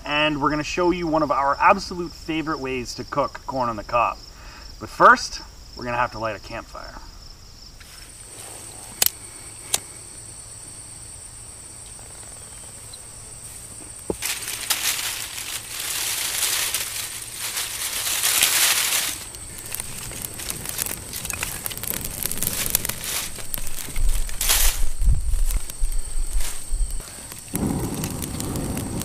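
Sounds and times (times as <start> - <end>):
cricket trill: 0.0 - 29.0
dry leaves rustled by hand: 13.4 - 29.0
twigs crackling and snapping: 13.7 - 29.0.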